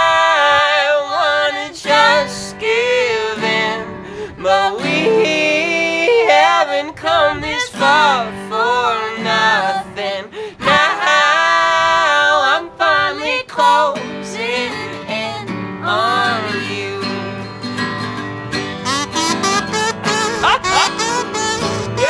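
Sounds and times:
man and woman singing duet: 0:00.0 - 0:17.5
acoustic guitar: 0:00.0 - 0:22.0.

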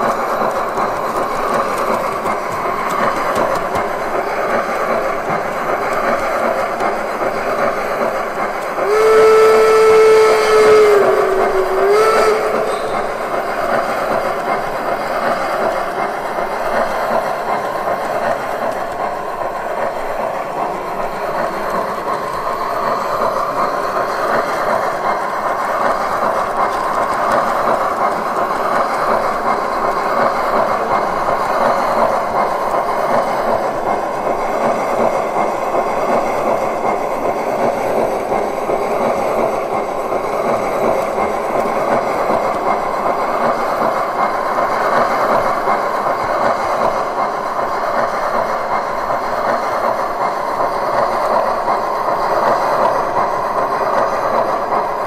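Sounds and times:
steam locomotive running sound: 0:00.0 - 0:55.0
wheels rolling on track: 0:00.0 - 0:55.0
locomotive whistle: 0:08.7 - 0:14.2.

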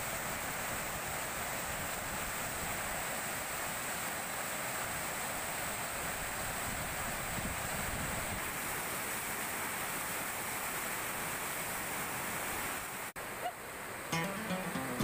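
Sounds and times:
background music: 0:14.1 - 0:15.0.

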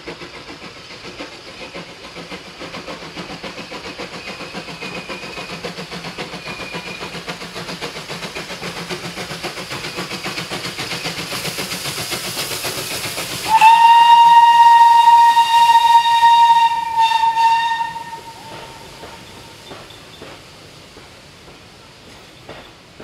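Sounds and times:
steam locomotive chuffing: 0:00.0 - 0:23.0
steam whistle blast: 0:13.4 - 0:19.5.

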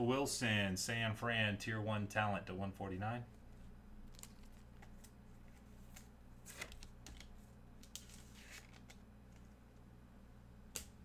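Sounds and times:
trading cards clicking and rustling: 0:04.0 - 0:09.5.

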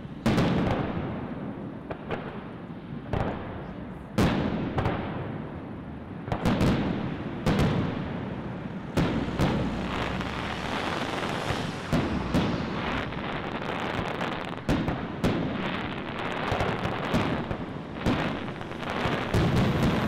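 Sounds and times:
fireworks bangs: 0:00.0 - 0:20.0
steady rumble: 0:07.2 - 0:20.0.

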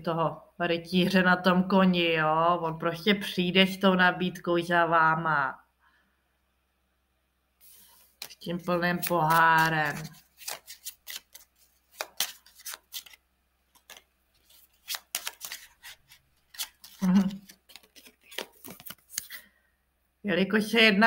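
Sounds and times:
cards being shuffled: 0:07.6 - 0:19.4.

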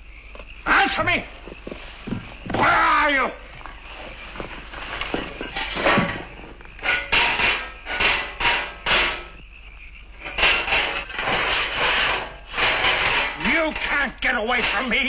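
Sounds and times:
metal hand tool scraping: 0:05.0 - 0:09.4, 0:10.2 - 0:15.0.

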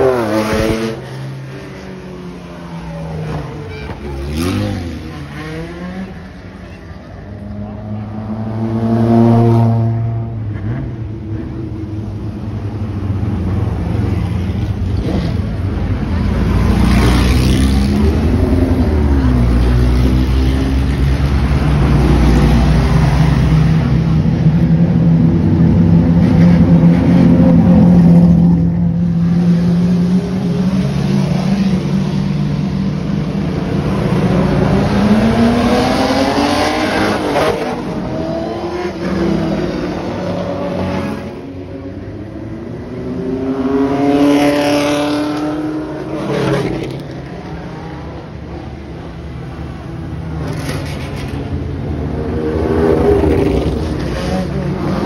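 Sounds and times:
race car engines passing: 0:00.0 - 0:55.0.

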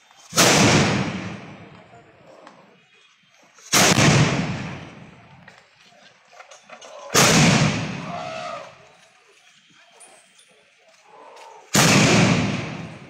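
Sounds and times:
cannon blasts: 0:00.3 - 0:01.7, 0:03.7 - 0:05.2, 0:07.1 - 0:08.2, 0:11.7 - 0:13.0.

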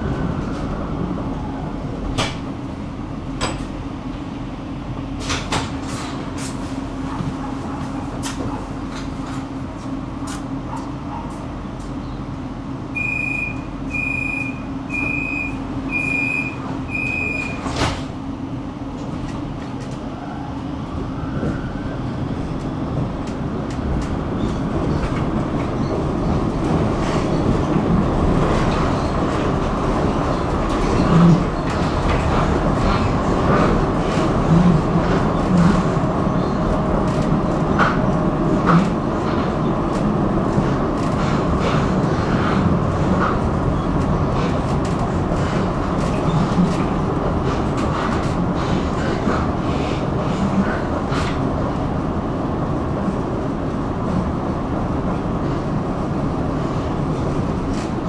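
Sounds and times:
tram running noise: 0:00.0 - 0:58.0
tram warning beeps: 0:12.8 - 0:17.8.

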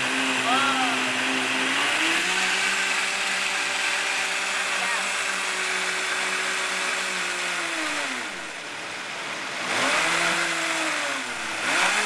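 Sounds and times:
blender motor running: 0:00.0 - 0:12.0.

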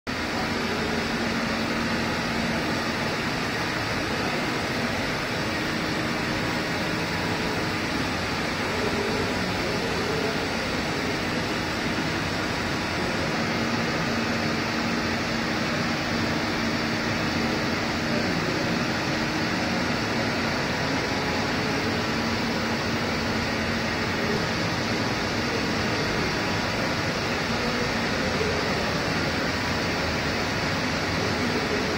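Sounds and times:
machine drone: 0:00.1 - 0:31.9.

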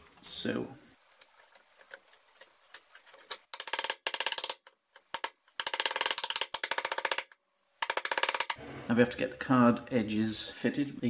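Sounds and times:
rapid clicking: 0:03.2 - 0:08.6.

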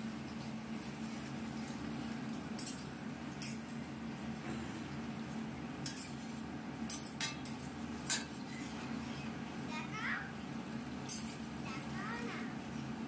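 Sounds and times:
metal spatula clinking on pan: 0:06.9 - 0:08.7.

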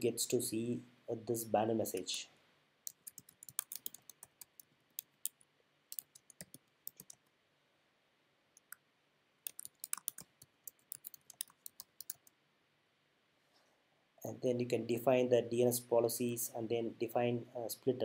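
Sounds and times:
typing on computer keyboard: 0:02.9 - 0:07.2, 0:09.4 - 0:12.3.

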